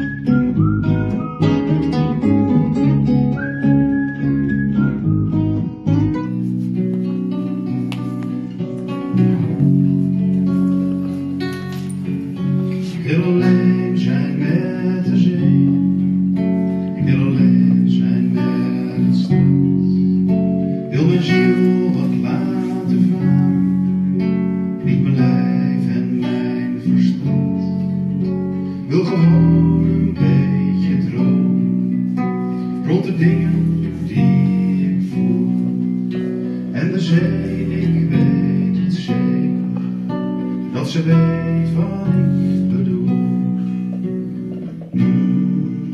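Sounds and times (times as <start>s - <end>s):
acoustic guitars strumming: 0.0s - 45.9s
electric bass guitar: 0.0s - 45.9s
person singing: 12.7s - 16.0s, 16.8s - 20.3s, 20.9s - 23.8s, 24.7s - 27.8s, 40.7s - 45.9s.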